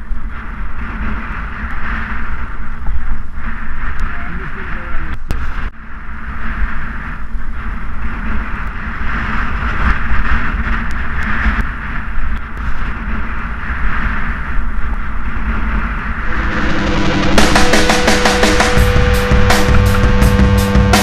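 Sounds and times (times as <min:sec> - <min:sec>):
wind rush: 0:00.0 - 0:21.0
road rumble: 0:15.8 - 0:21.0.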